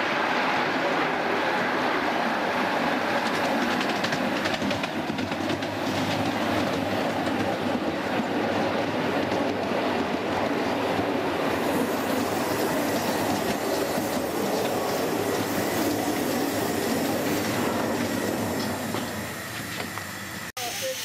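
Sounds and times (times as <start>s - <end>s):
train wheels rumbling on rails: 0.0s - 21.0s
high wheel squeal: 11.6s - 21.0s.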